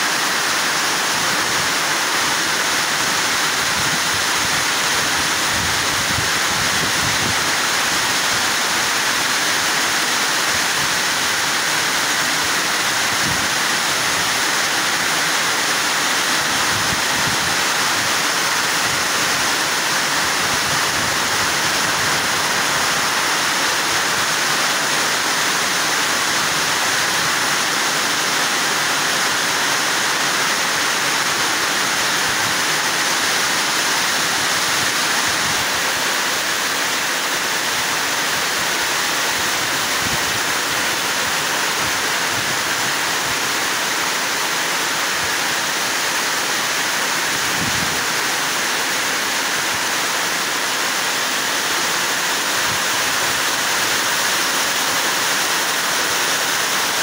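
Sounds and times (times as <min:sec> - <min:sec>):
heavy rain pouring: 0:00.0 - 0:57.0.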